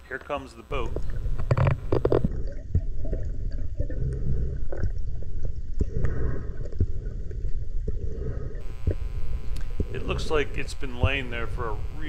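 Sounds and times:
sharp clicks underwater: 0.1 - 10.1
small gurgles: 0.7 - 10.1
low rumble of water moving: 0.7 - 12.0.

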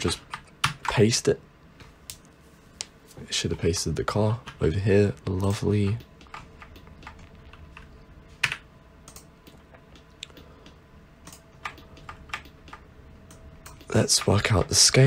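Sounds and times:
computer keyboard keys clicking: 5.8 - 7.6, 8.4 - 10.5, 11.2 - 14.4.

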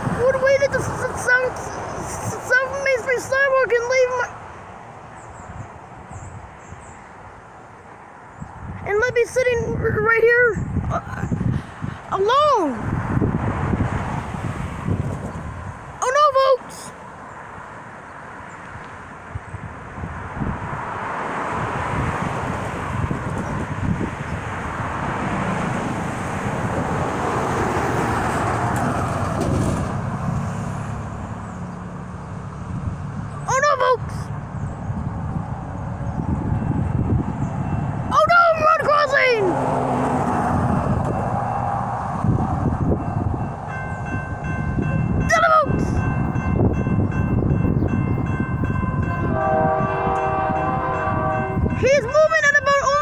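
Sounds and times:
cars passing by: 0.0 - 53.0
tyre and engine noise: 0.0 - 53.0
crossing bell dinging: 36.5 - 37.0, 42.8 - 53.0.

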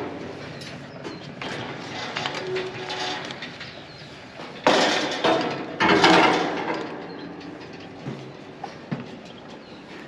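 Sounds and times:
metal scraping on railing: 1.4 - 8.0.

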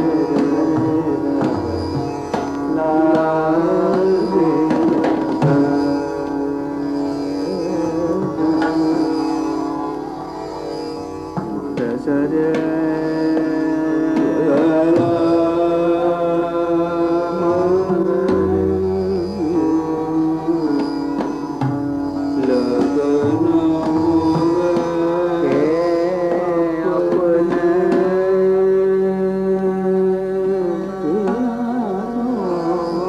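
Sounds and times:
indian classical music: 0.0 - 33.0.

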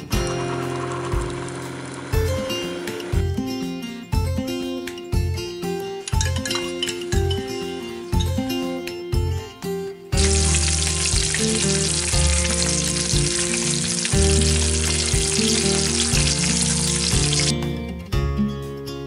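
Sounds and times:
background guitar music: 0.0 - 19.0
bacon sizzling in a pan: 10.2 - 17.5.

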